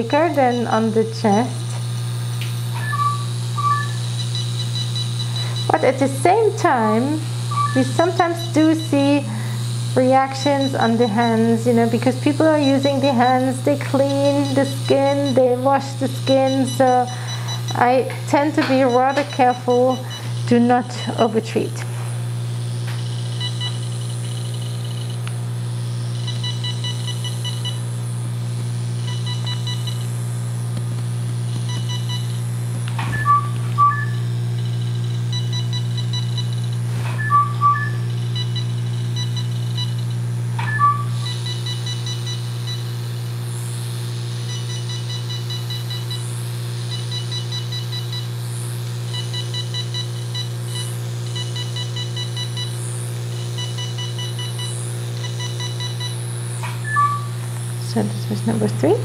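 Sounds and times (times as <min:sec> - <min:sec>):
rapid quiet beeps: 0:00.0 - 0:01.0, 0:02.7 - 0:21.4, 0:22.6 - 0:25.2, 0:25.9 - 0:27.8, 0:29.0 - 0:30.1, 0:31.5 - 0:32.4, 0:33.1 - 0:43.0, 0:44.3 - 0:48.3, 0:49.1 - 0:56.2, 0:56.8 - 0:57.4
steady low hum: 0:00.0 - 0:59.0
louder two-note beeps: 0:02.8 - 0:04.0, 0:07.5 - 0:09.0, 0:37.2 - 0:38.1, 0:40.6 - 0:41.3, 0:56.8 - 0:57.4.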